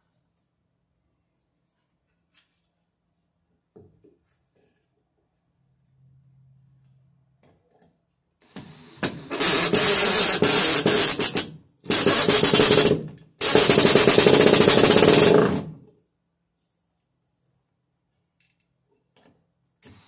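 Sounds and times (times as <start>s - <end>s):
drill hole saw cutting wood: 9.0s - 15.6s.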